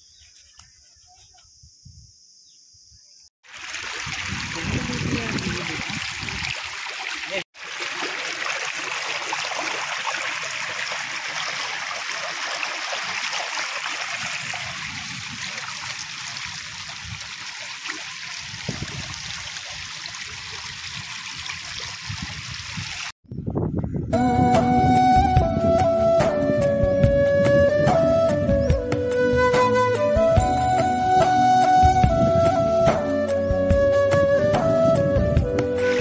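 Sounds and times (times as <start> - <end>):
stream water rippling over rock: 3.4 - 23.2, 35.8 - 36.0.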